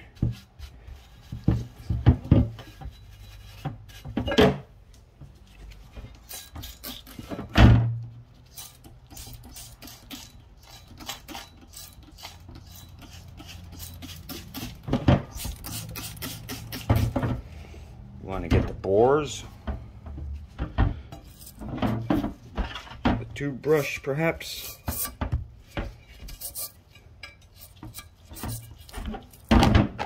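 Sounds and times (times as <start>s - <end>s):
brush scrubbing wet metal: 0.0s - 4.2s, 5.4s - 7.4s, 8.2s - 17.3s, 23.3s - 29.5s.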